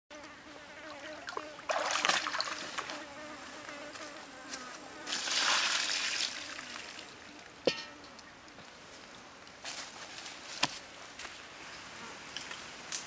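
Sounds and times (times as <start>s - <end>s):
flying insect buzzing: 0.1s - 7.1s.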